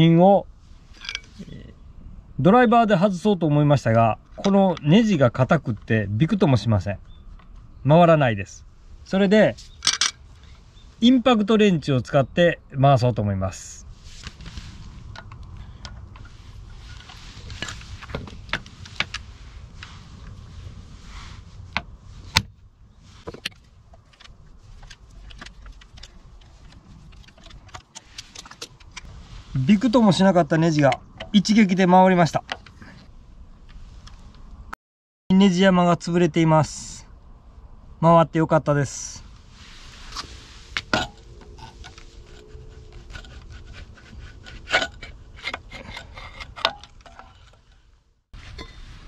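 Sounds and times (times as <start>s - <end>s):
metal scraping inside muffler: 39.5s - 49.0s.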